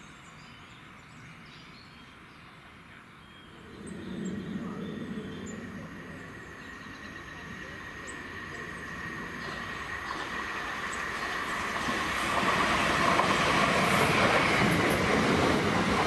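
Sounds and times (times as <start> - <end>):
electric train approaching: 3.5 - 16.0.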